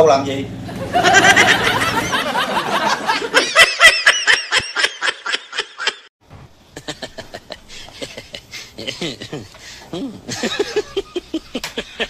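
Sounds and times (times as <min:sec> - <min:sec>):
person laughing ha-ha: 0:06.8 - 0:12.0.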